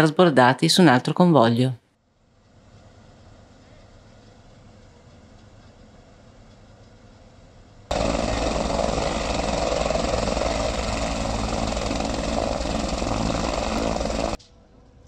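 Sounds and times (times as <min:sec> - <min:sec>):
engine running: 0:07.9 - 0:14.4.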